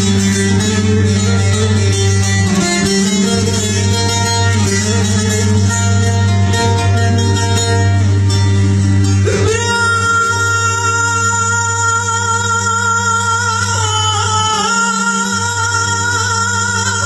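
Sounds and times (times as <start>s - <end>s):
plucked string instrument melody: 0.0s - 17.0s
man singing: 9.2s - 17.0s.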